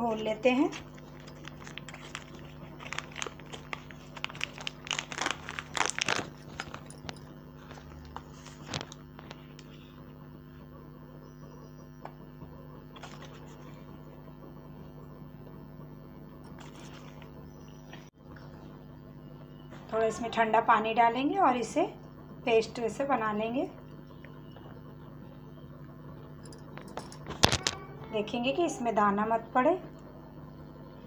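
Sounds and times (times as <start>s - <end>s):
packet tearing and crinkling: 0.8s - 9.4s.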